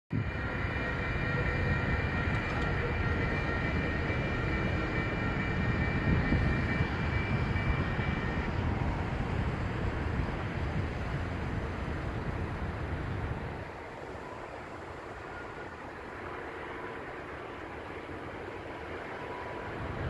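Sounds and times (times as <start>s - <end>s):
crossing bell ringing: 0.2s - 11.5s.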